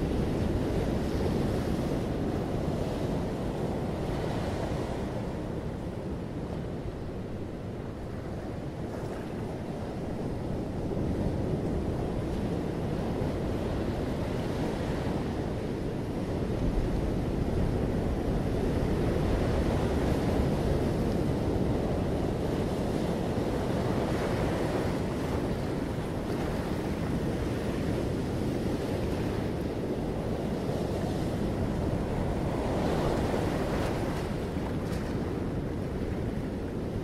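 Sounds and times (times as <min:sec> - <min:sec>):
wind rumbling on microphone: 0:00.0 - 0:37.0
surf washing against rocky shore: 0:16.7 - 0:37.0.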